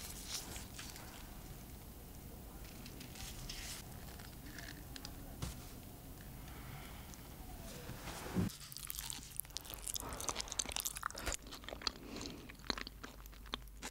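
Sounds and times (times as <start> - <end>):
crunchy chewing: 8.5 - 13.9.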